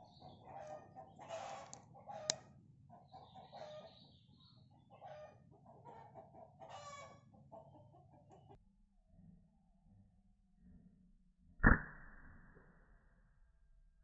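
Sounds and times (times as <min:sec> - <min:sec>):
junglefowl clucking: 0:00.0 - 0:03.9, 0:04.8 - 0:08.5.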